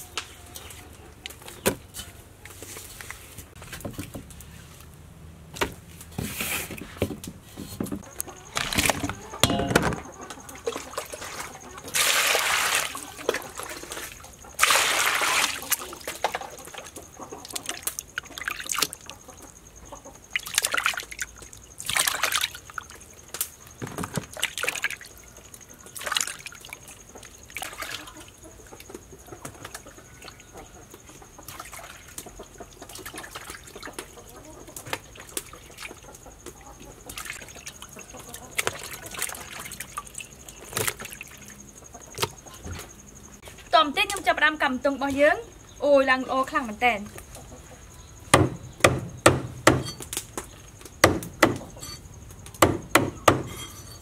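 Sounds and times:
water splashing and sloshing in basin: 8.4s - 19.6s, 20.2s - 43.0s.

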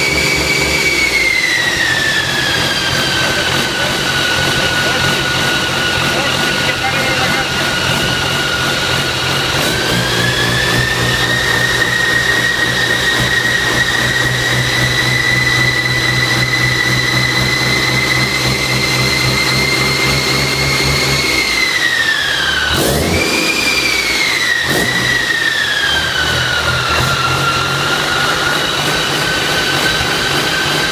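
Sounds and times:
diesel engine running fast: 0.0s - 30.9s
high whine: 0.0s - 30.9s.

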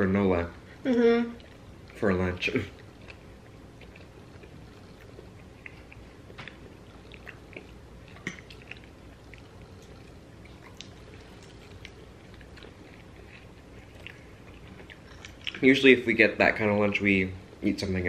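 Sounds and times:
quiet chewing: 0.9s - 15.9s.

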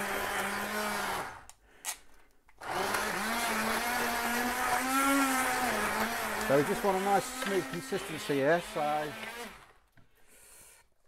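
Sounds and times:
stick blender motor humming: 0.0s - 1.6s, 2.6s - 9.8s.

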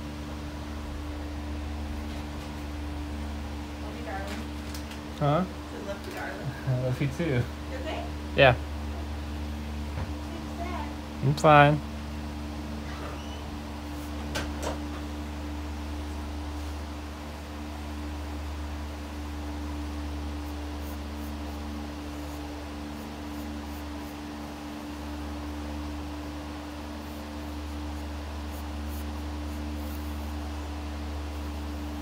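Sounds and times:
pencil scratching on paper: 20.4s - 25.3s, 27.0s - 30.6s.

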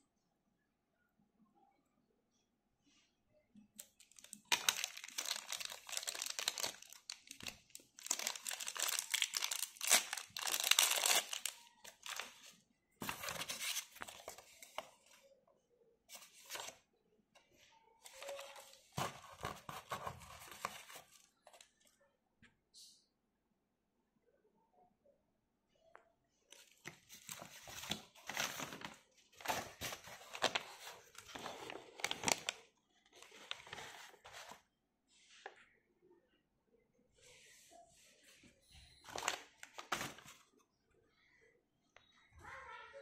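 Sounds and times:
plastic packaging crinkling and tearing: 3.8s - 12.5s, 26.8s - 32.6s.

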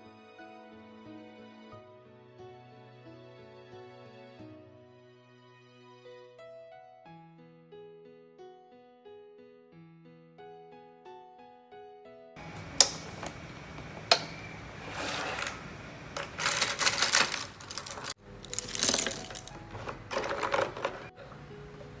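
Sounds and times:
paint tubes and brushes clattering: 14.7s - 22.0s.

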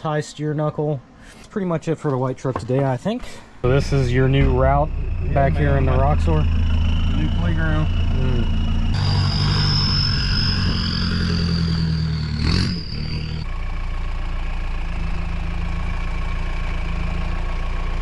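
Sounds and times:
steady high whine: 3.6s - 13.5s
diesel engine running at low revs: 3.6s - 18.0s.

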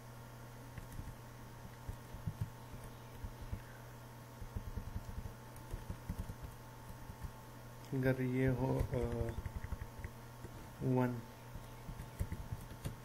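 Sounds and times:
low electrical hum: 0.0s - 13.0s
keyboard and mouse clicks: 4.4s - 7.4s, 8.6s - 10.6s, 11.9s - 13.0s.

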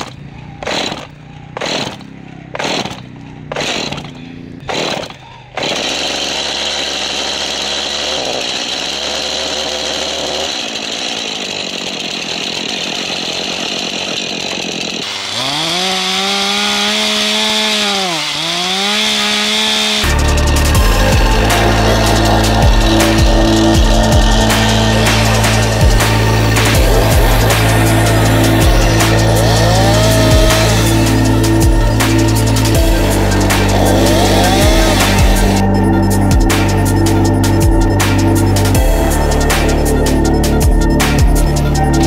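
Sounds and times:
chainsaw starter cord pulls: 0.0s - 35.6s
chainsaw engine idling and revving: 0.0s - 42.0s.

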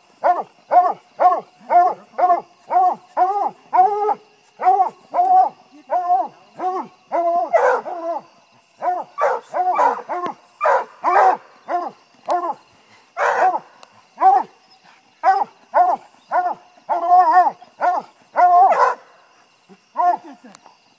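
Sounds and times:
dog barking: 6.6s - 8.2s, 8.8s - 12.6s, 13.2s - 13.6s, 14.2s - 14.5s, 15.2s - 19.1s, 20.0s - 20.2s.

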